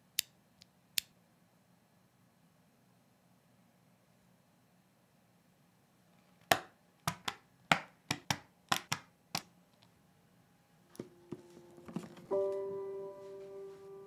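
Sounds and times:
soft music: 0:11.0 - 0:14.0.

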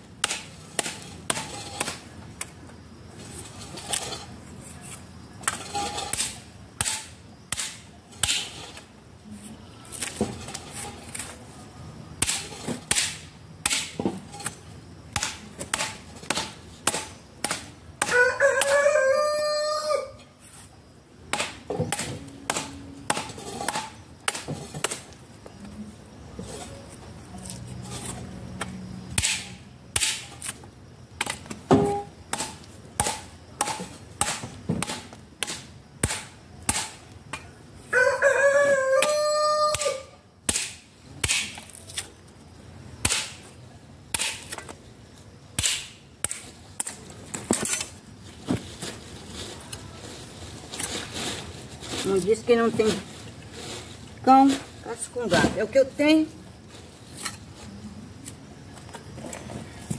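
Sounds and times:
hand tool striking wooden log: 0:05.5 - 0:08.5, 0:12.2 - 0:14.1, 0:21.3 - 0:25.0, 0:28.6 - 0:30.5, 0:31.2 - 0:37.0, 0:39.0 - 0:41.7, 0:45.6 - 0:47.0
rooster crowing: 0:18.0 - 0:20.2, 0:37.9 - 0:40.2.

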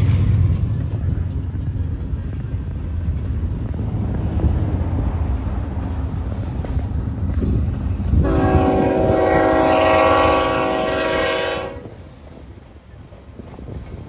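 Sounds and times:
freight train rumbling past: 0:00.0 - 0:14.0
locomotive air horn blast: 0:08.2 - 0:11.9.

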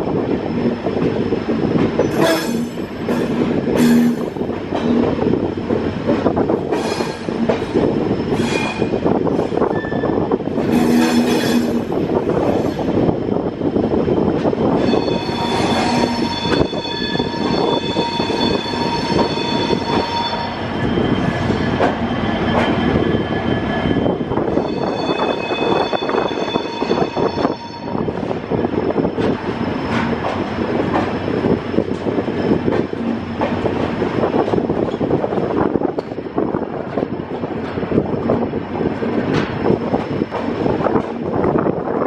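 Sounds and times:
train wheels rumbling on rail: 0:00.0 - 0:42.0
clacks over rail joints: 0:01.8 - 0:09.6, 0:21.8 - 0:22.8, 0:29.1 - 0:41.6
wheel flanges squealing: 0:14.6 - 0:30.2.

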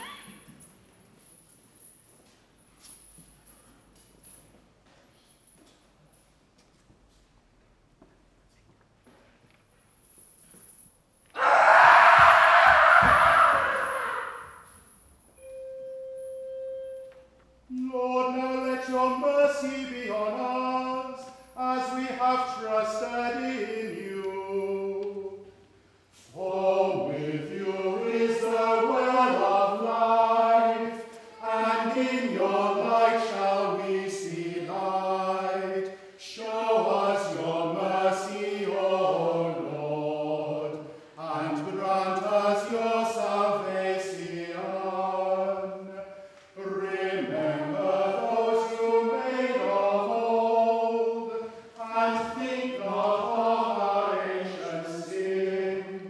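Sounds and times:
men singing chant in unison: 0:17.8 - 0:25.4, 0:26.3 - 0:56.0.

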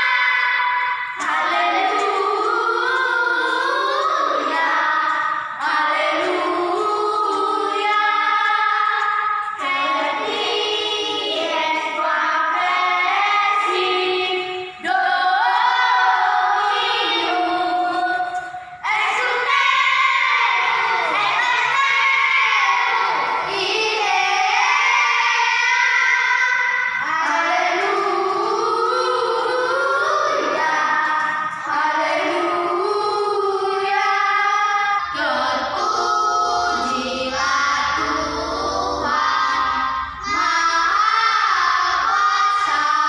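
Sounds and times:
children singing: 0:00.0 - 0:43.0.

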